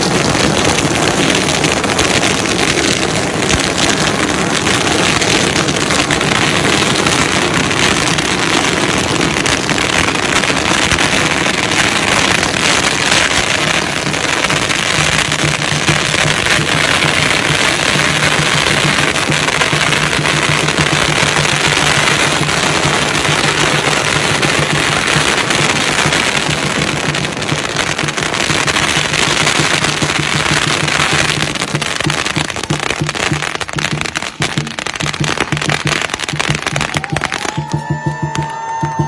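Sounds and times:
firecrackers crackling: 0:00.0 - 0:39.0
large drum beating: 0:31.3 - 0:39.0.

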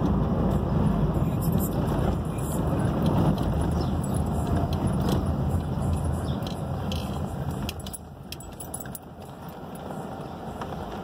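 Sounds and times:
car engine and tyre rumble: 0:00.0 - 0:11.0
light rattling clicks: 0:02.9 - 0:09.6.

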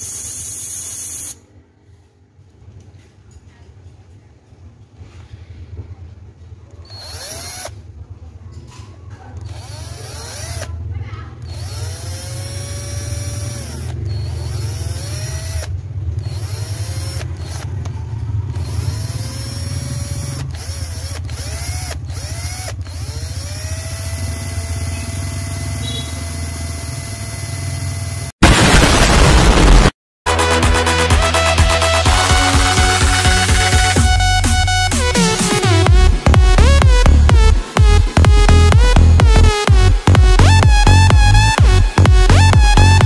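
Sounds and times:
power drill whining on metal canister: 0:06.8 - 0:07.7, 0:09.4 - 0:10.8, 0:11.4 - 0:17.9, 0:18.5 - 0:28.4.

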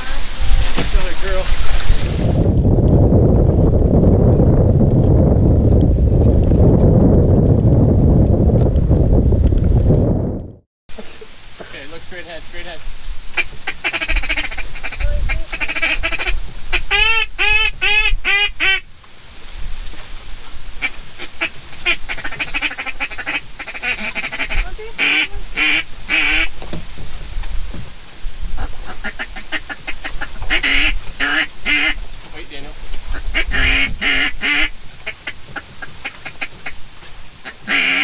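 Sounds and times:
duck call blown: 0:13.4 - 0:18.8, 0:20.8 - 0:26.5, 0:28.6 - 0:32.0, 0:33.1 - 0:36.8, 0:37.4 - 0:38.0.

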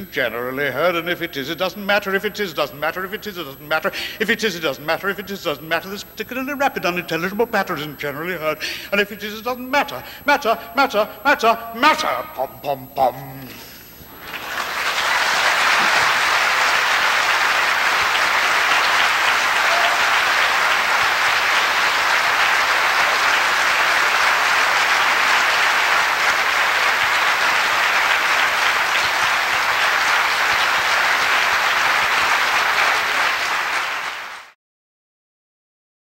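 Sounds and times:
audience applauding: 0:14.1 - 0:34.6.

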